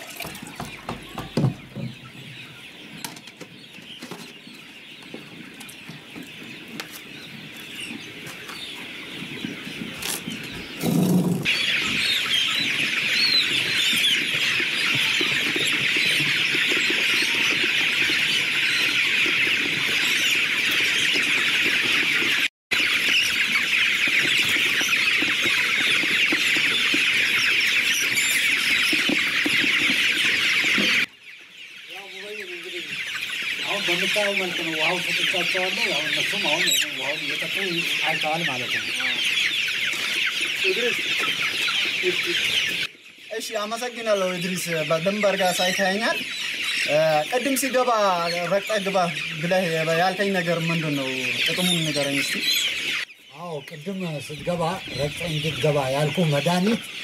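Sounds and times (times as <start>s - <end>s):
chicks peeping: 0.0s - 57.0s.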